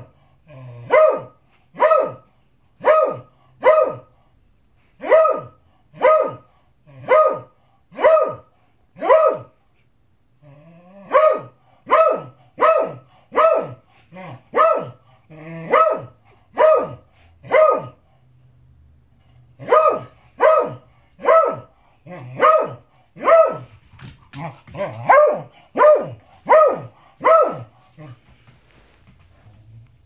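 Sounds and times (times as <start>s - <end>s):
dog barking: 0.8s - 4.1s, 5.0s - 9.6s, 11.0s - 15.0s, 15.6s - 18.0s, 19.6s - 23.7s, 24.8s - 27.7s.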